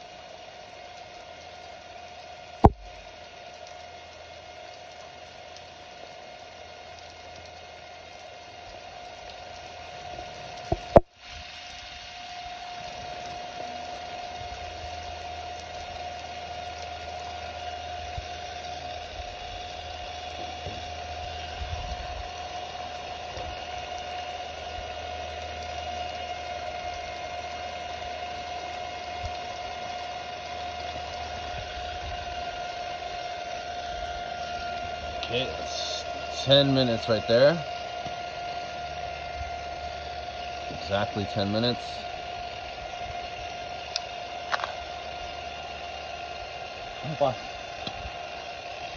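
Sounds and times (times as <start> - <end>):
mechanical hum: 0.0 - 48.9
water spray pattering: 9.2 - 39.0.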